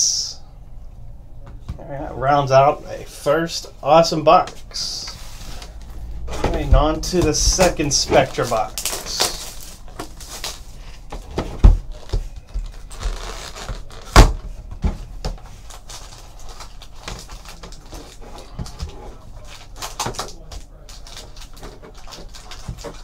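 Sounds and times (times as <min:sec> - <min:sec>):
foil packs rustling and clicking: 0:07.6 - 0:11.2, 0:11.9 - 0:14.2, 0:15.3 - 0:23.0.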